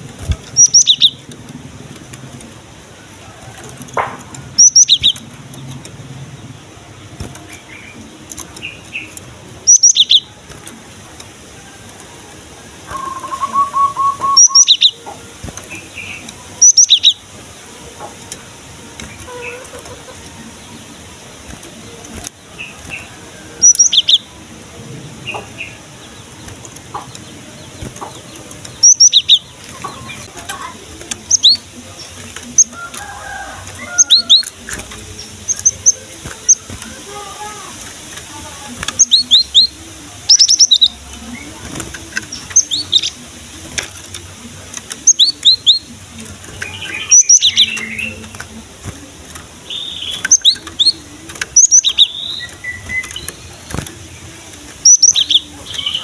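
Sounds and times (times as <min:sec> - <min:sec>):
bird trill: 0:00.2 - 0:01.2, 0:04.5 - 0:05.2, 0:08.6 - 0:10.3, 0:12.9 - 0:17.2, 0:22.6 - 0:24.3, 0:26.9 - 0:37.9, 0:38.9 - 0:41.0, 0:42.2 - 0:43.2, 0:46.6 - 0:48.4, 0:49.6 - 0:53.8, 0:54.8 - 0:56.0
bird calling with sharp high notes: 0:12.9 - 0:15.2.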